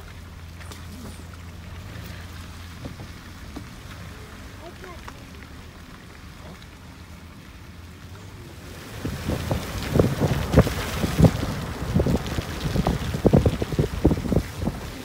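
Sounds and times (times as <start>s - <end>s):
car driving on wet road: 0.0s - 15.0s
wind buffeting microphone: 8.8s - 15.0s.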